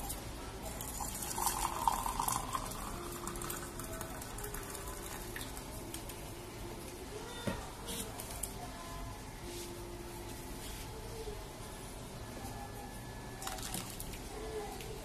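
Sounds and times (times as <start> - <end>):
liquid pouring into a mug: 0.6 - 6.1, 13.4 - 14.2.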